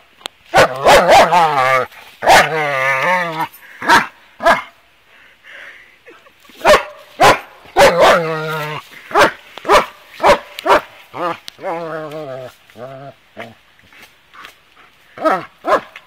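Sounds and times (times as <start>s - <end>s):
dog barking and growling: 0.5s - 4.7s, 6.6s - 13.6s, 15.2s - 16.0s.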